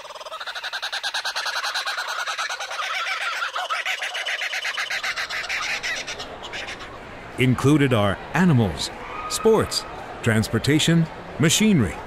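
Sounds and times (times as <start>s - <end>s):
howler monkey calling: 0.0s - 7.0s.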